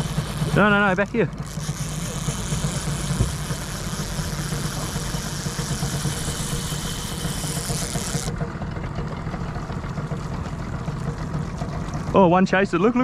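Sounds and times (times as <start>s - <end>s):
boat motor idling: 0.0s - 13.0s.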